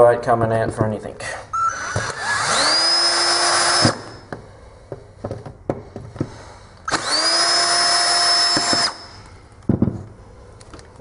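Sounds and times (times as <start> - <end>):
cordless drill motor running: 1.6 - 4.3, 6.9 - 9.3.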